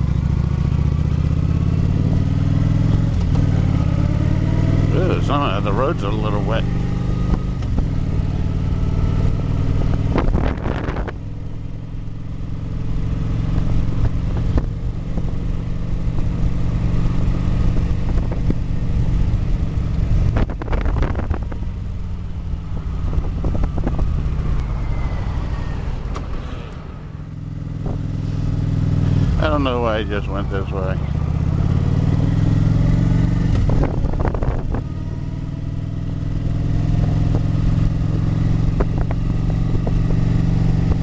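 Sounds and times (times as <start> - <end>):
motorcycle engine running: 0.0 - 41.0
wind noise on microphone: 9.3 - 11.4, 17.2 - 18.9, 19.5 - 26.2, 32.1 - 41.0.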